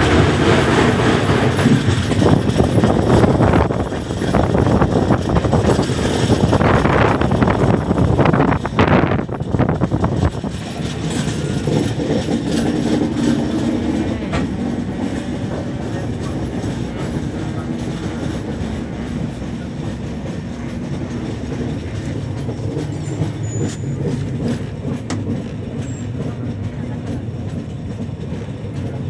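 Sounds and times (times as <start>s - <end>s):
train wheels rumbling on rails: 0.0s - 29.0s
sharp clicks from track: 22.8s - 25.5s.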